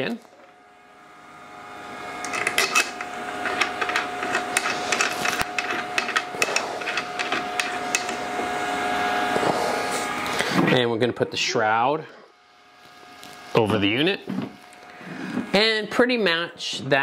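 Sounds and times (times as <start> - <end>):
small clicks and scrapes: 2.2 - 8.2.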